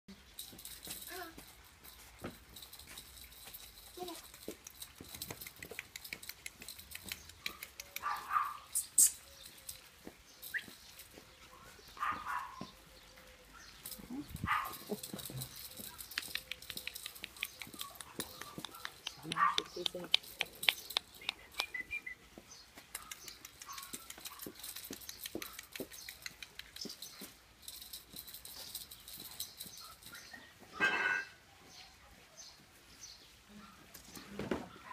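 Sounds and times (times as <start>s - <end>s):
dog claws clicking on paving: 2.2s - 10.7s, 13.9s - 22.1s, 22.7s - 30.2s
dog barking: 8.0s - 8.7s, 11.6s - 12.7s, 14.5s - 14.8s, 18.4s - 19.7s.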